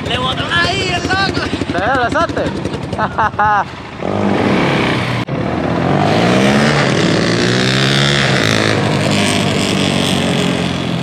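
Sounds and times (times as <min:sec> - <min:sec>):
small engine revving: 0:04.0 - 0:11.0.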